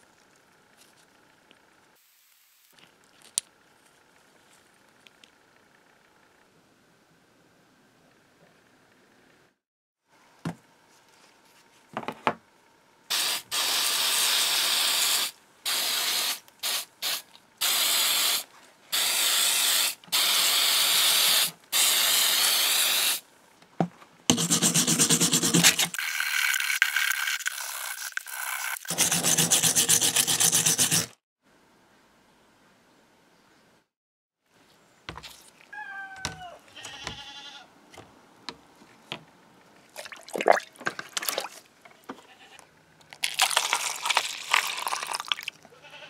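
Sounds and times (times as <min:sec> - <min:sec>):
spray can hissing: 0:13.1 - 0:23.2
hand tool scraping paint: 0:24.3 - 0:26.0, 0:28.8 - 0:31.2.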